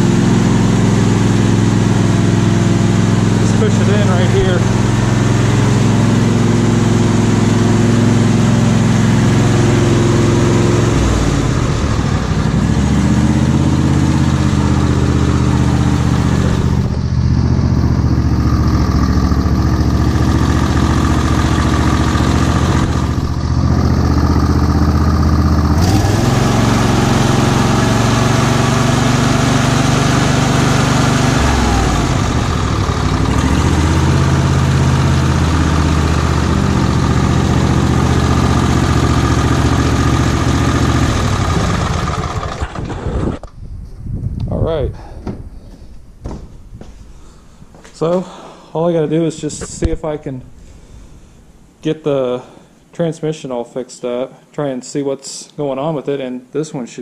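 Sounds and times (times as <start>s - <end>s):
lawn tractor engine running: 0.0s - 43.6s.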